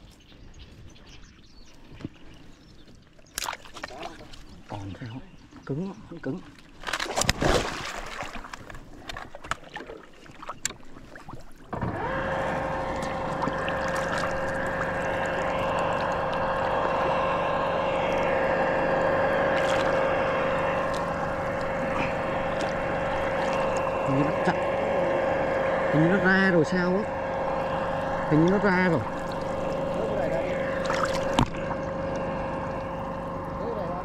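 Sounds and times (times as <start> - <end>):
motor hum: 0.0 - 34.0
high whine: 11.8 - 34.0.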